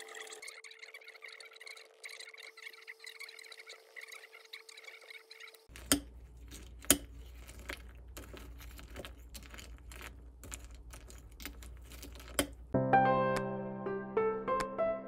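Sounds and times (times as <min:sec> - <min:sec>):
spoon scooping cereal in bowl: 0:05.7 - 0:12.7.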